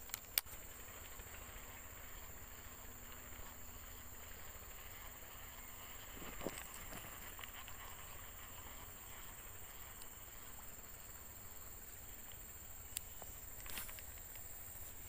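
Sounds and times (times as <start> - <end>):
sharp clicks: 0.0 - 0.6
high insect drone: 0.0 - 15.0.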